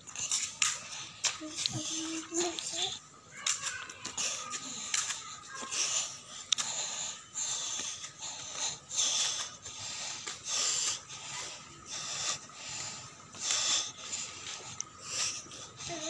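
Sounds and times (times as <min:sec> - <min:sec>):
footsteps on pavement: 0:00.1 - 0:11.5.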